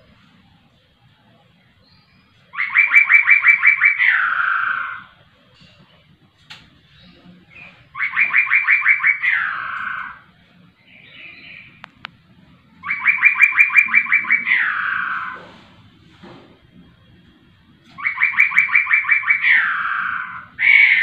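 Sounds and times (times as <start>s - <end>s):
soft bird chirps: 1.6s - 5.8s, 6.8s - 12.2s
bird singing loudly: 1.8s - 5.2s, 7.0s - 11.8s, 12.8s - 15.5s, 17.9s - 21.0s.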